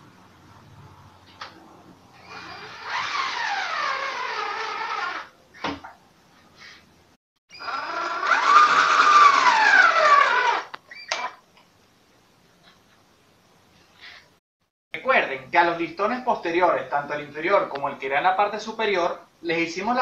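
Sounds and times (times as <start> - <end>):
cordless drill driving screws: 2.2 - 5.3, 7.6 - 10.7.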